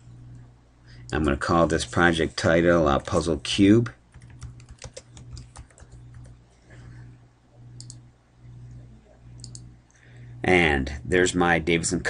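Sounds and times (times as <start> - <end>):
low steady hum: 0.0 - 12.0
keyboard typing: 4.1 - 6.4, 7.7 - 8.0, 9.4 - 9.7
mouse click: 7.8 - 8.0, 9.4 - 9.7.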